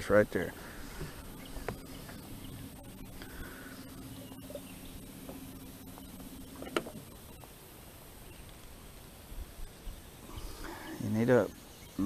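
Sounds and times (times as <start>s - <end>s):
electric motor humming: 0.6s - 8.0s.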